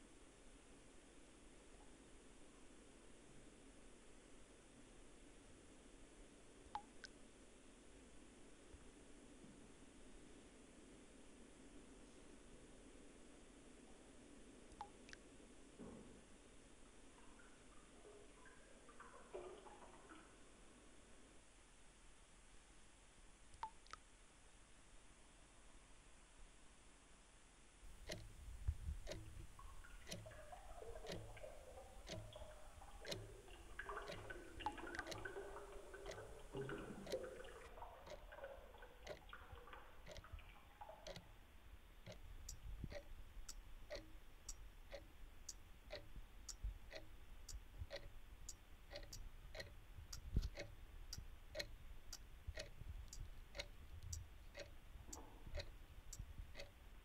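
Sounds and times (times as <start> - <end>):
clock ticking: 27.9 - 57.0.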